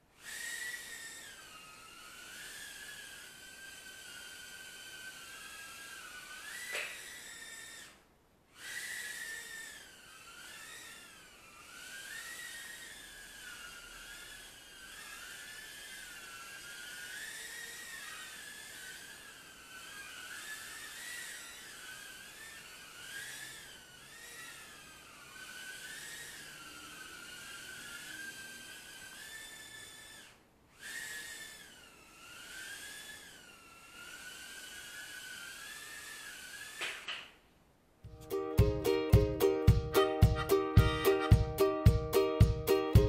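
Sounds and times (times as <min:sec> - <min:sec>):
quadcopter motors whining: 0:00.1 - 0:37.4, 0:40.3 - 0:41.5.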